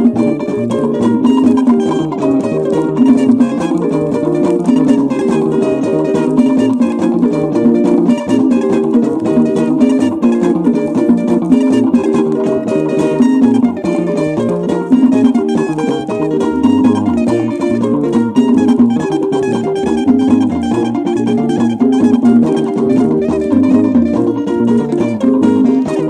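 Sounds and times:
highlife band music: 0.0 - 26.0
plucked guitar lines: 0.0 - 26.0.

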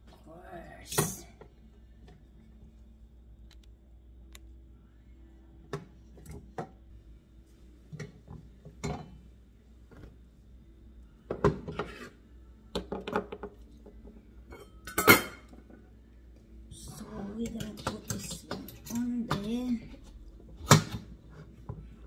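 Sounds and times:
metal cookware clinking: 14.5 - 15.6, 17.3 - 19.6.

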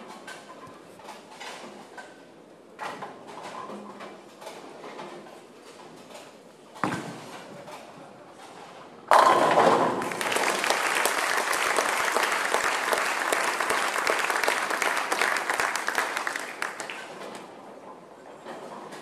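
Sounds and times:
bowling ball crashing into pins: 9.1 - 10.4
audience applauding: 9.9 - 17.2.

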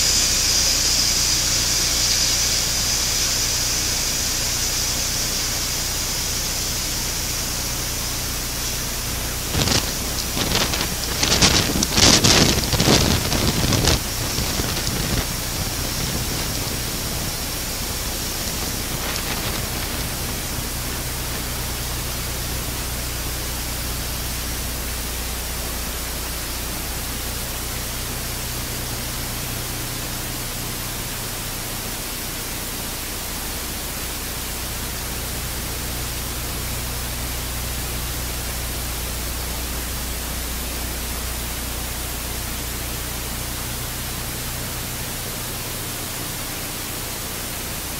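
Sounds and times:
turboprop engines running: 0.0 - 47.9.

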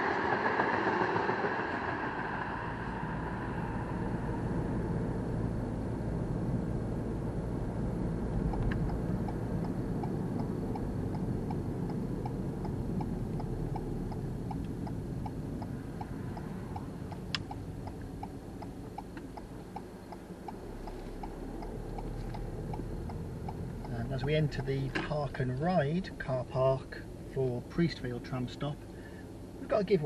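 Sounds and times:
road and engine rumble: 0.0 - 30.0
car turn indicator ticking: 8.2 - 26.6.

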